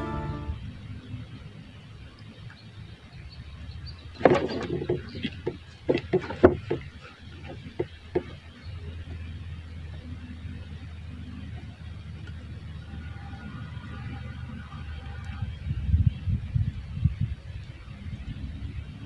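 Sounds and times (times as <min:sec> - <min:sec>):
wooden knocks against canoe hull: 0:04.2 - 0:08.4.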